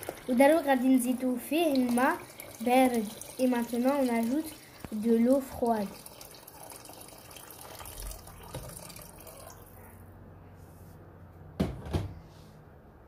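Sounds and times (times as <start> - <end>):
water pouring into a pan: 0.0 - 9.6.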